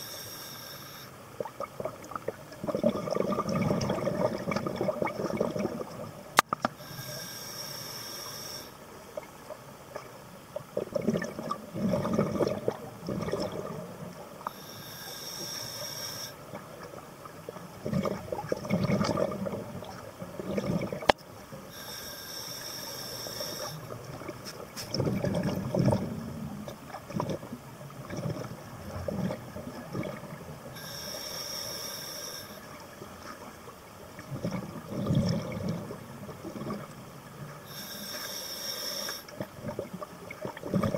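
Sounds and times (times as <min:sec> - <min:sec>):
regulator hissing inhale: 0:00.0 - 0:01.2, 0:06.8 - 0:08.8, 0:14.4 - 0:16.4, 0:21.7 - 0:24.0, 0:30.7 - 0:32.8, 0:37.6 - 0:39.4
gurgling exhaled bubbles: 0:01.4 - 0:06.3, 0:10.7 - 0:14.2, 0:16.6 - 0:21.2, 0:23.6 - 0:30.9, 0:34.2 - 0:37.8, 0:39.3 - 0:40.9.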